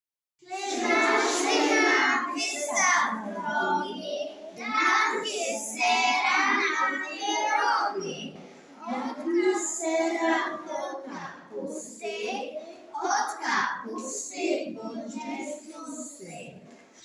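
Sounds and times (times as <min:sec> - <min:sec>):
young children singing: 0:00.4 - 0:17.0.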